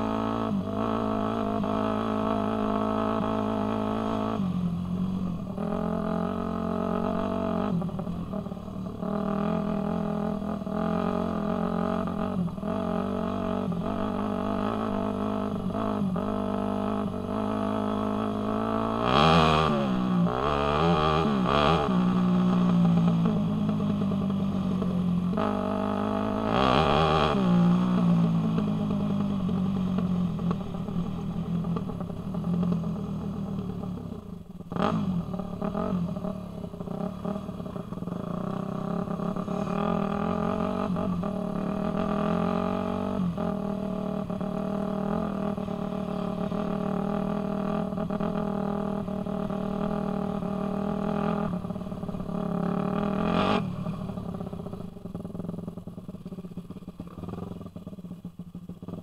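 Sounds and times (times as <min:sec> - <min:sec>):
dirt bike engine revving: 0:25.4 - 0:28.6, 0:38.3 - 0:53.7.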